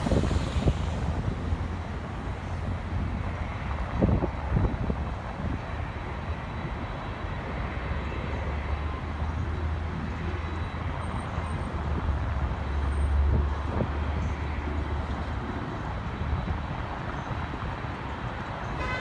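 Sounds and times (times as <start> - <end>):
road traffic: 0.0 - 19.0.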